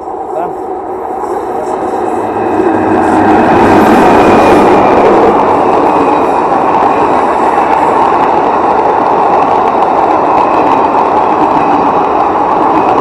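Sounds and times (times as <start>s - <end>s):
train wheels rushing on rail: 0.0s - 13.0s.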